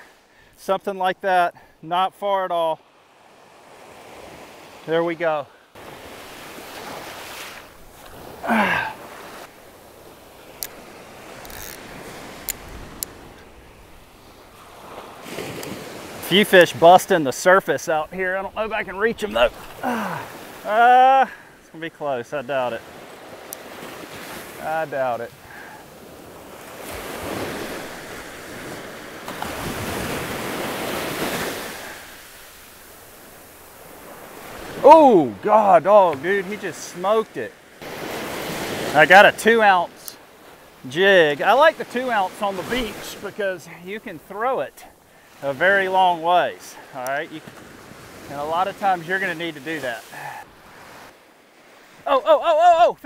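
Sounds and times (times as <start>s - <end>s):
surf washing onto beach: 2.2s - 53.0s
man grunting: 8.4s - 9.0s, 19.8s - 21.4s, 34.8s - 35.4s, 52.1s - 53.0s
fishing reel clicks: 11.4s - 11.8s.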